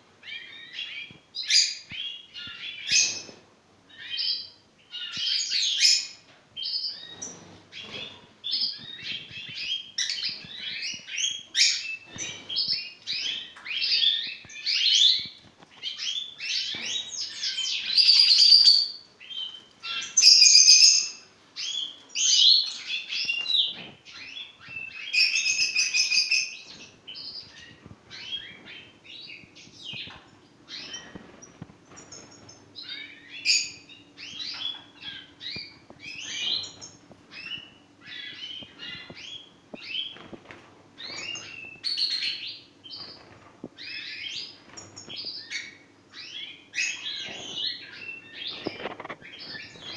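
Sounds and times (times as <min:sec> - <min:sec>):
goldfinches twittering and trilling: 0:41.0 - 0:49.9.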